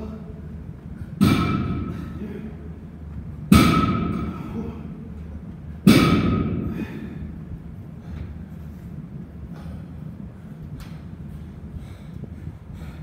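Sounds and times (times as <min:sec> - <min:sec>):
sharp ringing impacts: 0:01.2 - 0:02.3, 0:03.5 - 0:04.6, 0:05.8 - 0:07.2.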